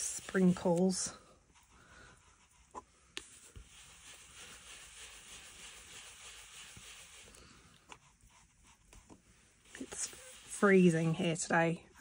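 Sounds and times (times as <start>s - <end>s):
brush rubbing over cardstock: 0.0s - 11.7s.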